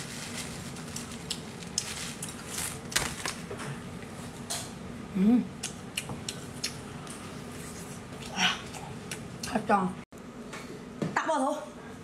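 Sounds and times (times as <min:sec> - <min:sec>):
person humming: 0:05.1 - 0:05.6
person chewing with mouth smacks: 0:05.6 - 0:09.5.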